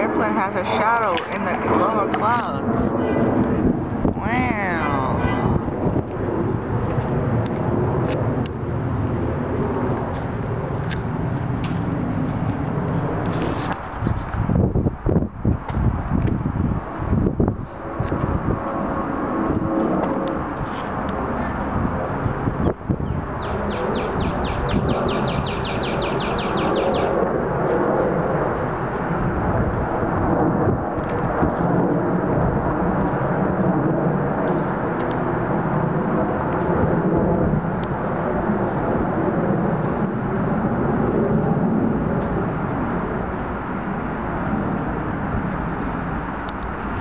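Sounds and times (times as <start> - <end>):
jet airliner flying overhead: 0.0 - 47.0
bird chirps: 23.4 - 27.1
bird trilling: 23.4 - 27.2.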